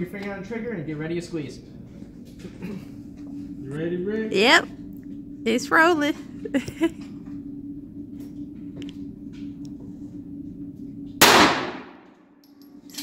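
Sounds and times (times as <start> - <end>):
pistol shot echoing indoors: 11.2 - 12.1.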